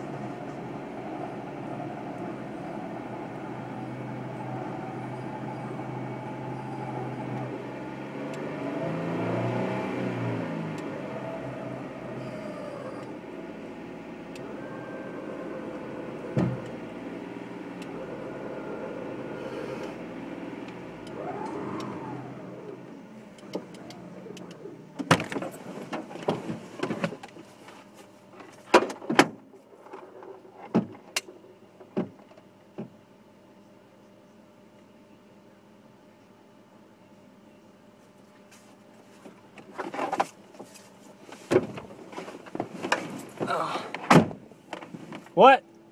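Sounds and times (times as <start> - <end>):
electric winch motor whine: 0.0 - 9.5, 10.7 - 24.8.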